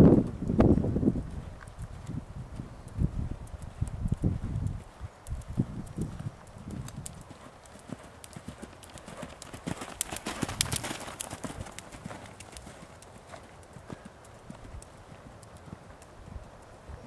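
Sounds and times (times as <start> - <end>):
hooves trotting on sand: 0.0 - 17.0.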